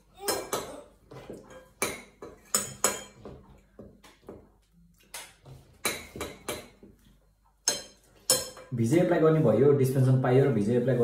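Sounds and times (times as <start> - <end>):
dishes and cutlery clinking: 0.1 - 4.5, 5.1 - 9.0.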